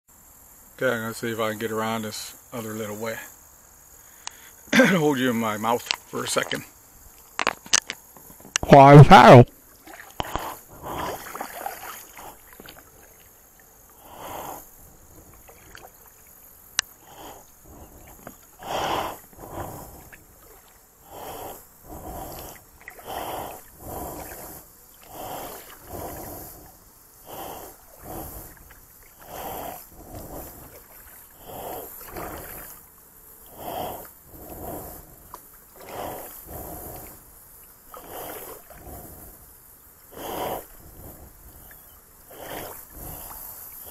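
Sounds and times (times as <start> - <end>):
paddle swishing through water: 9.8 - 13.4, 16.9 - 32.8, 37.9 - 39.3, 40.1 - 43.9.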